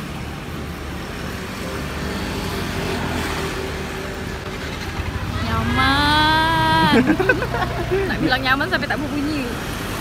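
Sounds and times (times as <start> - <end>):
vehicle passing on road: 0.0 - 10.0.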